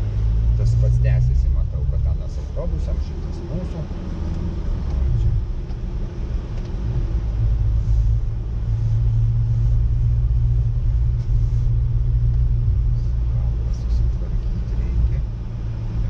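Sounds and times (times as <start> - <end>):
car engine and road drone: 0.0 - 16.0.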